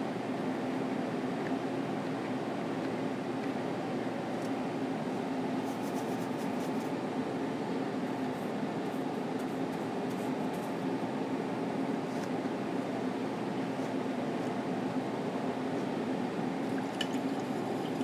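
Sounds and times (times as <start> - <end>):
mechanical room hum: 0.0 - 18.0
paintbrush scratching: 5.6 - 6.9.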